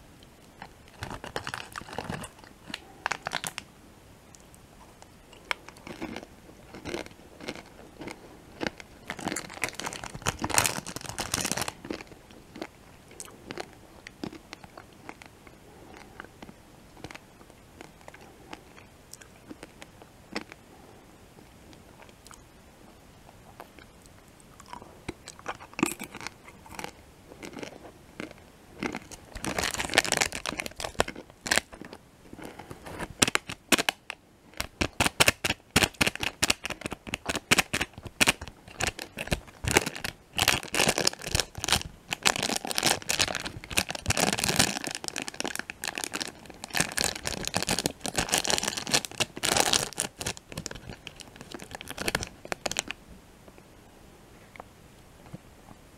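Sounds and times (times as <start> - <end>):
plastic candy wrapper crinkling: 0.6 - 3.7, 5.4 - 15.4, 25.2 - 53.0.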